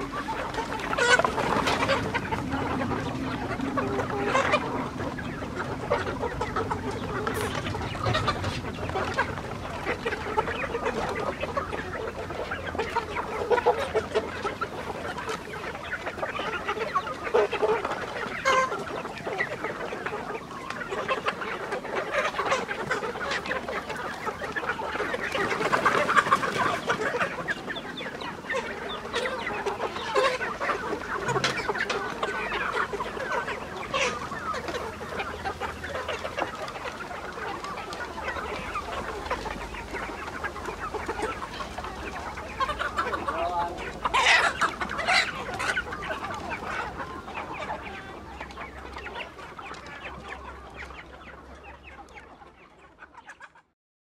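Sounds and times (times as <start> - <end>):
chickens clucking: 0.0 - 53.8.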